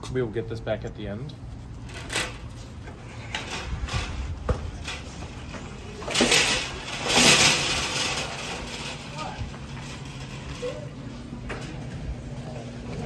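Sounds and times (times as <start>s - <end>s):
shopping cart rattling over pavement: 3.1s - 11.0s
loud clatter: 6.1s - 9.2s.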